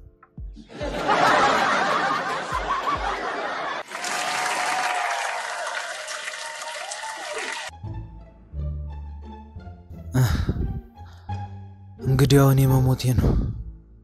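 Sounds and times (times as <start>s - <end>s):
audience laughter: 0.7s - 6.2s
audience applause: 1.1s - 7.8s.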